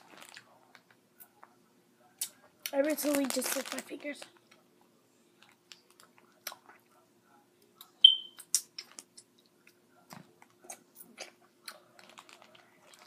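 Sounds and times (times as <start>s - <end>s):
lip smacks: 7.8s - 11.8s.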